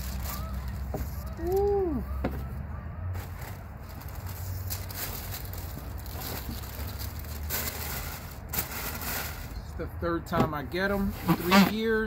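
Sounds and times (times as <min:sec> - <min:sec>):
tissue paper rustling and crinkling: 0:00.0 - 0:01.7, 0:03.1 - 0:09.6.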